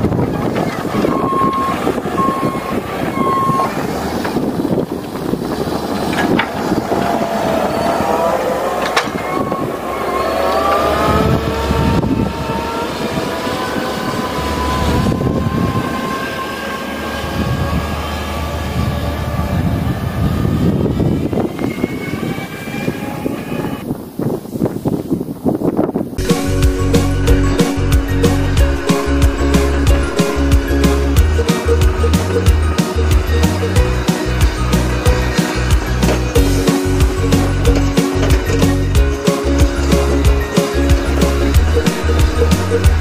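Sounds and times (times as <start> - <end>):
loader engine revving: 0.0 - 23.8, 26.2 - 43.0
short beeps: 1.1 - 3.7.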